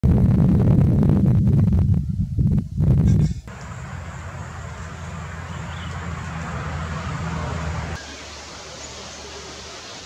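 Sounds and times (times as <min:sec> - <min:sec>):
steady low rumble: 0:00.0 - 0:08.6
quiet outdoor background: 0:00.0 - 0:10.0
background hiss: 0:03.2 - 0:10.0.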